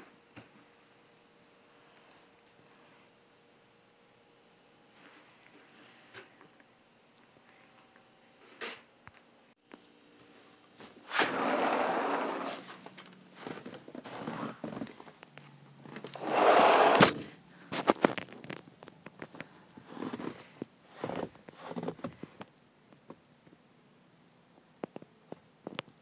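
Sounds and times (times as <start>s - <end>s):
sliding door rumbling: 11.1s - 12.7s, 16.1s - 17.3s
footsteps on snow: 19.8s - 22.0s.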